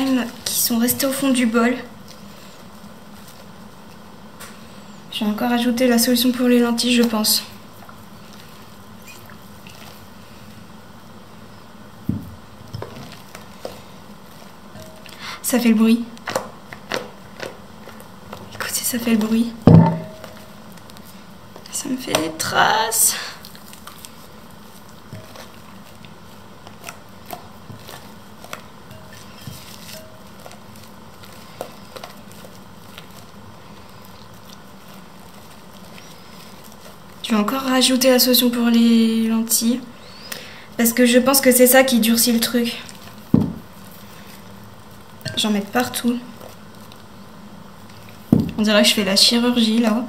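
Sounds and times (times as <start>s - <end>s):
slime squelching: 5.0s - 11.6s, 12.4s - 50.0s.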